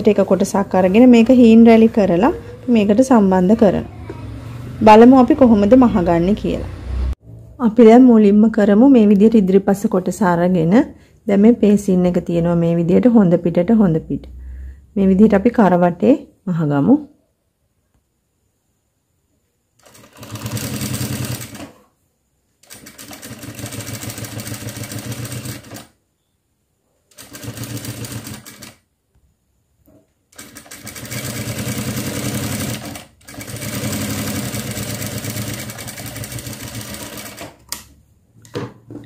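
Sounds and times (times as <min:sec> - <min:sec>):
sewing machine stitching: 0:19.8 - 0:21.9, 0:22.6 - 0:25.9, 0:27.1 - 0:28.8, 0:30.3 - 0:37.9.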